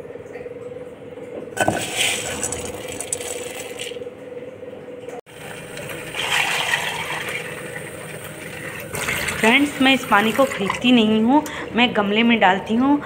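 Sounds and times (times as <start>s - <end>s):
chickpeas rattling in a pot: 1.6s - 4.0s
tap water pouring into a pot: 5.3s - 10.8s.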